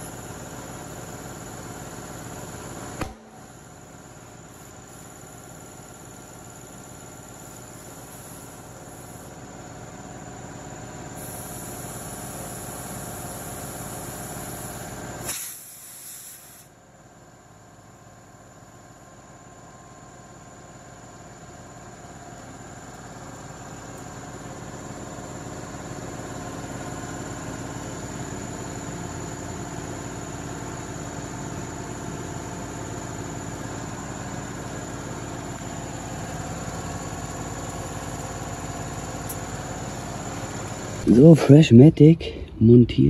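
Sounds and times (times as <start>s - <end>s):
air hissing into tyre: 0.0s - 9.4s, 11.1s - 16.8s
inflator mechanical hum: 0.0s - 15.8s, 21.8s - 43.0s.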